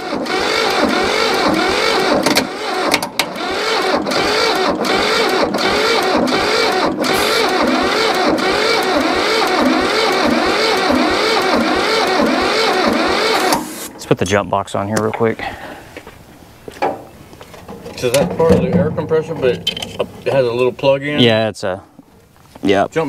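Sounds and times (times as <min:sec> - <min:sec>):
tractor starter cranking engine: 0:00.0 - 0:14.0, 0:16.8 - 0:20.7.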